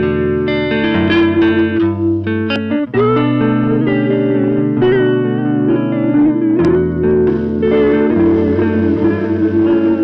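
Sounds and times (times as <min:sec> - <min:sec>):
electric guitar chords with delay: 0:00.0 - 0:10.0.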